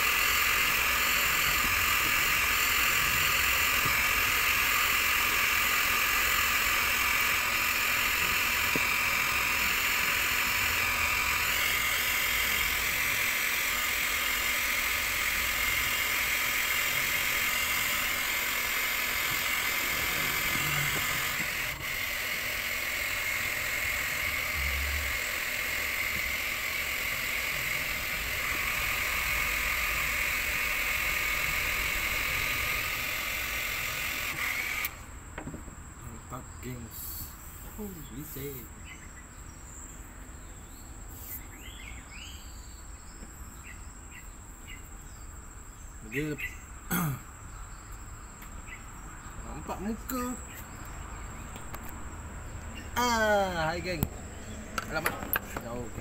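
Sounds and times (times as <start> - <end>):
hot-air gun blowing hiss: 0.0 - 35.1, 37.0 - 38.7, 41.1 - 41.5, 51.5 - 56.0.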